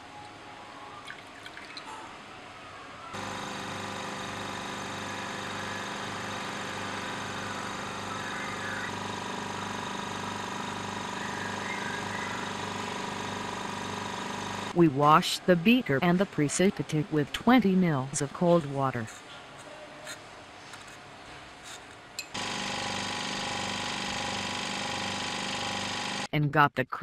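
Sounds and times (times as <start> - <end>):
liquid pouring into funnel: 1.0 - 1.9
vacuum pump humming: 3.2 - 14.9, 22.4 - 26.3.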